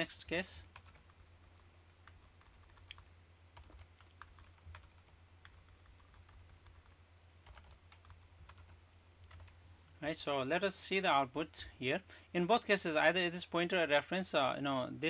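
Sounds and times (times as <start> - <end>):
low steady hum: 0.0 - 15.0
keyboard typing: 0.7 - 9.6.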